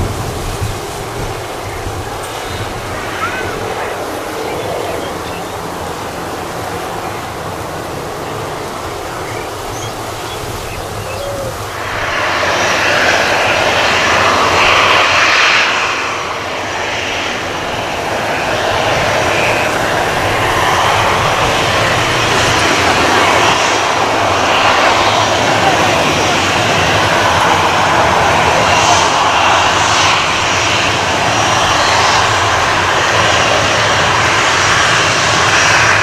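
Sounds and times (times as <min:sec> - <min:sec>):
jet engine passing: 0:00.0 - 0:36.0
faint bird chirps: 0:09.2 - 0:11.6.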